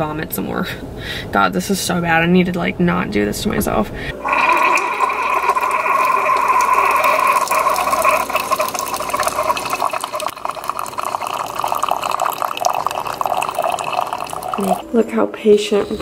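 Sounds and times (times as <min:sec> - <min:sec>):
coffee maker pump whirring: 0:04.2 - 0:14.9
coffee streaming into mug: 0:04.2 - 0:14.9.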